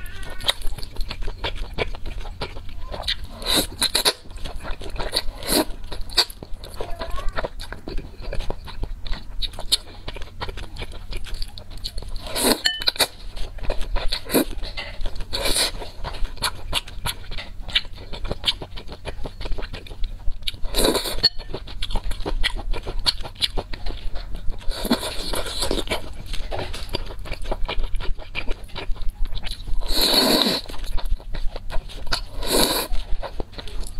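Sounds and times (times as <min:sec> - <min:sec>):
wet chewing: 0:00.0 - 0:33.9
noodle slurping: 0:29.8 - 0:31.0, 0:31.9 - 0:33.0.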